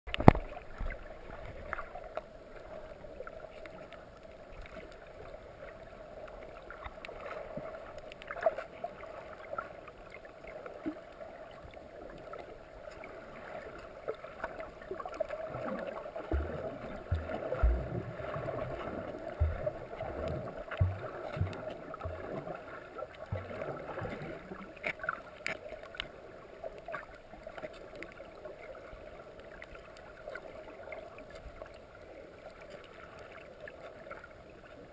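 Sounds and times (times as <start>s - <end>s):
muffled underwater water hiss: 0.4s - 34.8s
low thumps and knocks: 16.3s - 22.5s.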